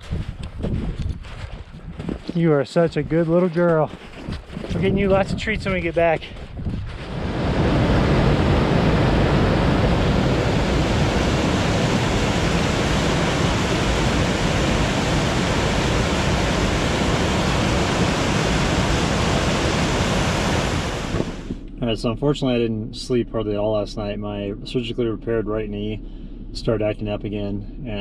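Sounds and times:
whitewater rushing down rocks: 11.0 - 21.4.

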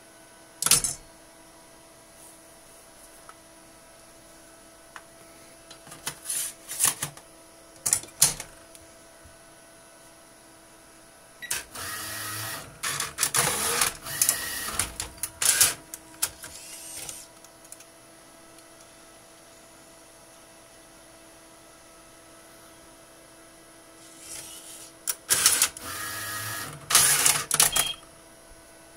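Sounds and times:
steady hum: 0.0 - 28.9
motor whirring: 11.5 - 15.8, 16.4 - 17.3, 24.0 - 27.4.

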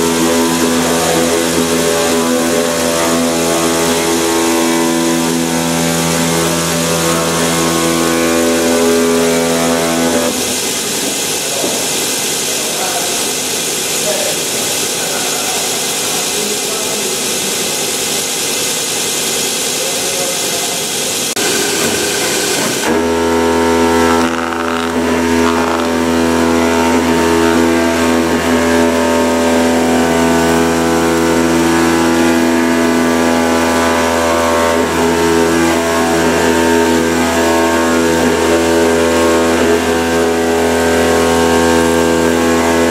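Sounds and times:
oscillating knife buzzing: 0.0 - 10.4, 21.5 - 42.9
machine hum: 0.0 - 42.9.

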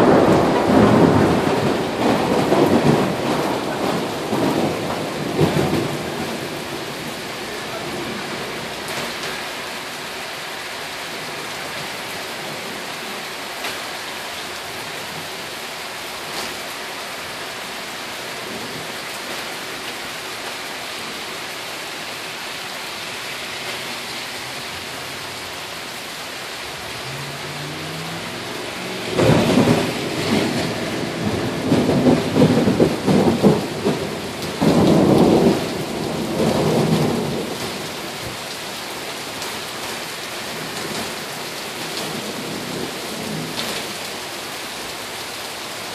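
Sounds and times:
thunder clap rumbling: 0.0 - 7.2, 26.8 - 37.9
steady rain: 0.0 - 45.9.

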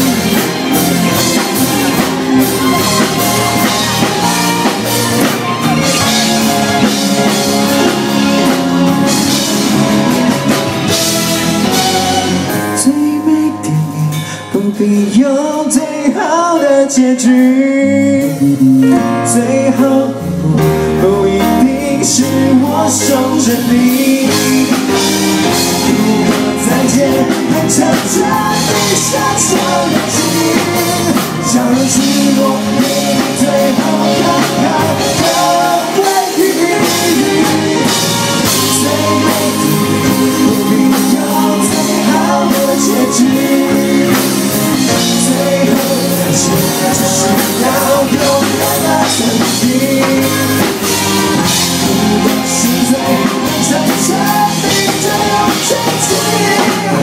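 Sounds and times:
electric guitar: 0.0 - 16.3, 16.9 - 57.0
bass: 0.0 - 57.0
drum kit: 0.0 - 57.0
keyboard: 0.0 - 57.0
man singing: 0.0 - 57.0.

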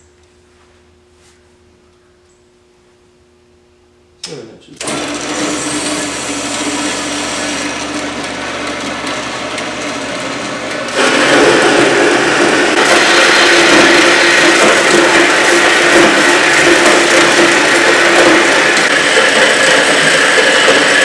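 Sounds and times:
band saw cutting metal: 4.8 - 21.0.

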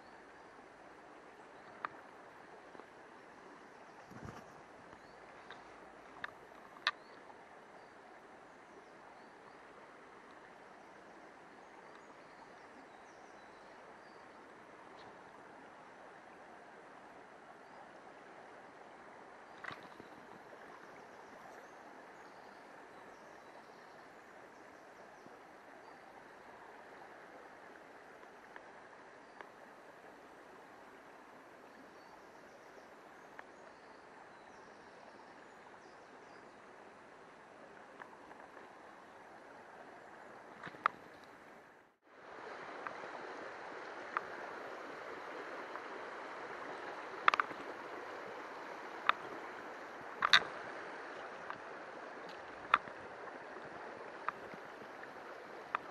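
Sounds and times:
river running over stones: 0.0 - 34.5, 35.4 - 55.9
faint ticks: 1.5 - 2.9, 3.9 - 7.2, 11.8 - 12.6, 19.5 - 21.7, 28.2 - 29.6, 32.8 - 33.9, 37.8 - 38.7, 40.6 - 41.4, 42.8 - 43.1, 44.0 - 44.4, 46.7 - 47.8, 48.4 - 55.9.

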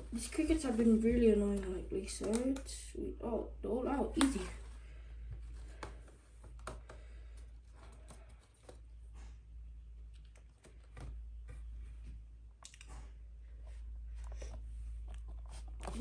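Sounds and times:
low steady hum: 0.0 - 16.0
hands clicking and tapping container: 2.1 - 2.8.

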